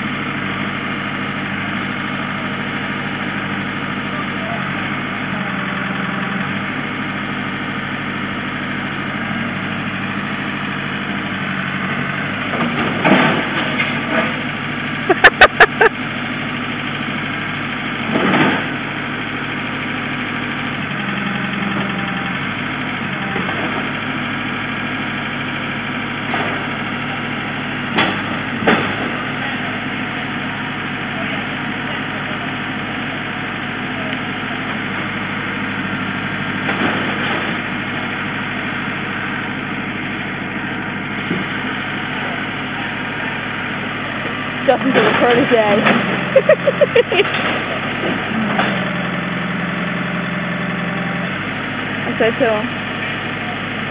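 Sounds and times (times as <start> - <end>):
backhoe engine running: 0.0 - 53.9.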